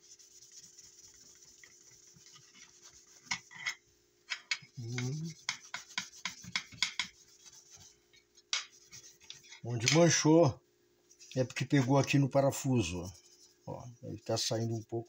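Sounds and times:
paper towel rubbing on wood: 0.0s - 3.6s, 4.8s - 8.0s, 8.6s - 9.7s, 12.6s - 15.0s.

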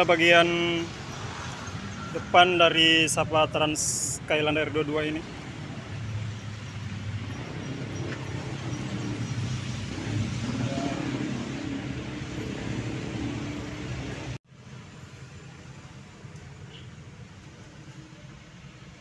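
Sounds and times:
bus engine humming: 5.2s - 19.0s.

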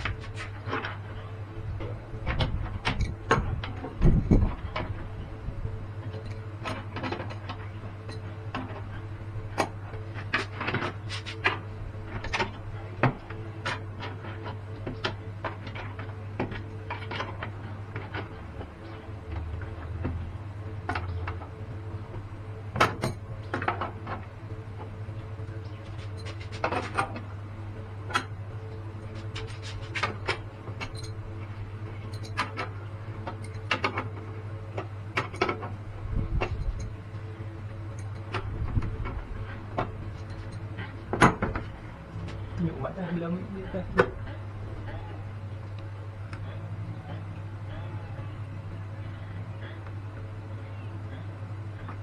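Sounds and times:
steady low hum: 0.0s - 52.0s
metal tools clinking: 30.8s - 31.2s, 32.1s - 32.6s.

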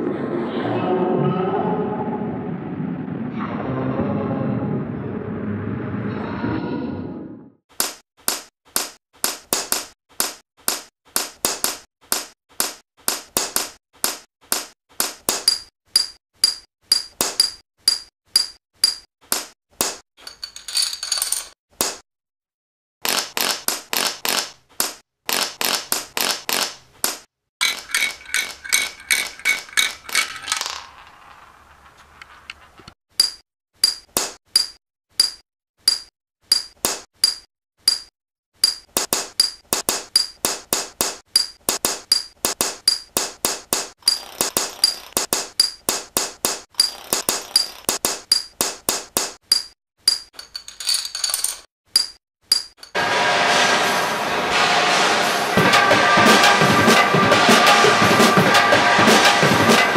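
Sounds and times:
dominoes toppling and clacking: 27.6s - 32.9s, 44.1s - 45.2s, 46.8s - 48.0s.

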